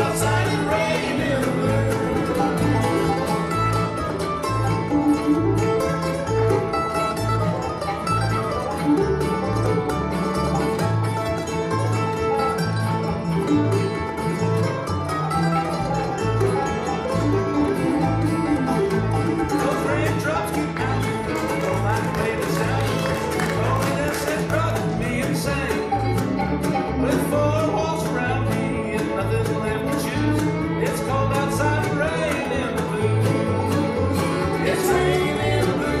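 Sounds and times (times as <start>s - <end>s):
acoustic guitar: 0.0s - 36.0s
banjo: 0.0s - 36.0s
fiddle: 0.0s - 36.0s
mandolin: 0.0s - 36.0s
upright bass: 0.0s - 36.0s.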